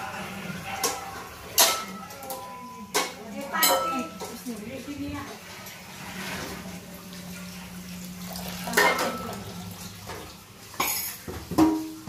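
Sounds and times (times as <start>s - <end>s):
dishes and utensils clinking: 0.0s - 6.6s, 8.6s - 12.0s
water running from tap: 2.8s - 12.0s.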